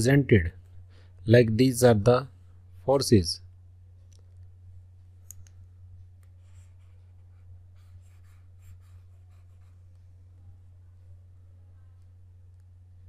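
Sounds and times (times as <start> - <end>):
steady low hum: 0.0 - 13.0
stylus scratching on drawing tablet: 6.3 - 10.0.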